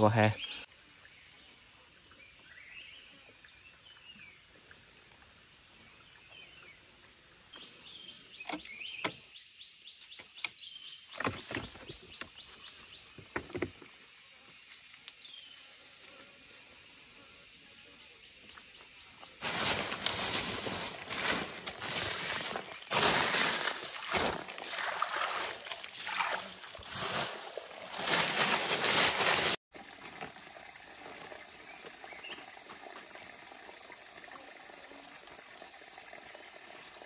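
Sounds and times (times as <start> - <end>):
close rustling: 19.4 - 29.6
dry leaves and twigs crackling: 19.4 - 29.6.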